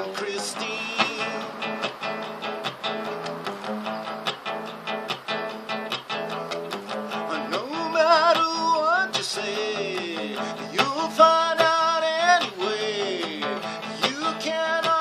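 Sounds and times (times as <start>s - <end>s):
man singing: 0.0s - 1.8s, 7.1s - 15.0s
guitar strumming: 0.0s - 15.0s.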